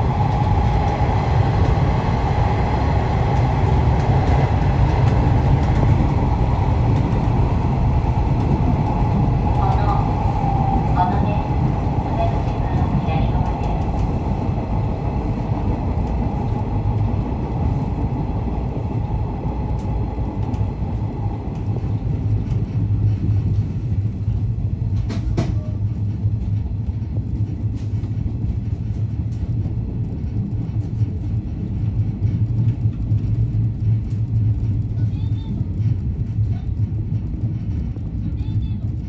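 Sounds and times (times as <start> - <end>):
electric train rumbling: 0.0 - 39.0.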